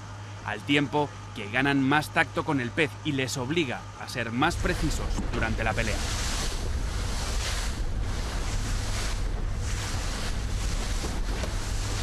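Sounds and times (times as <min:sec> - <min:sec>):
motorboat engine rumble: 0:03.8 - 0:12.0
wind on microphone: 0:04.8 - 0:12.0.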